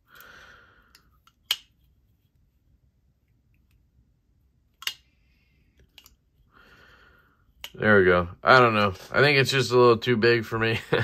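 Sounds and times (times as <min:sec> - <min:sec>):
folding knife clicking: 0:04.8 - 0:05.1.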